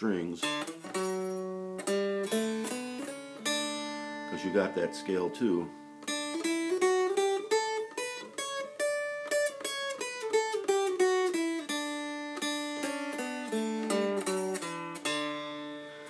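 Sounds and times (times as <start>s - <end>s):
mountain dulcimer playing: 0.4s - 16.0s.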